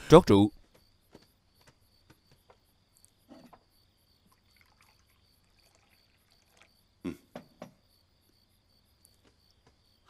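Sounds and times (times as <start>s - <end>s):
wine pouring into cups: 4.3s - 6.8s.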